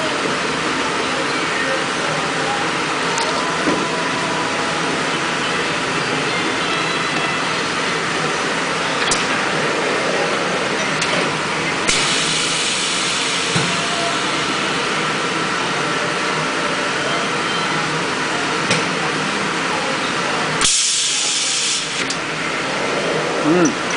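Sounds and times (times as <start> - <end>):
burst of air hiss: 11.9 - 13.9
hiss: 11.9 - 14.7, 20.6 - 22.1.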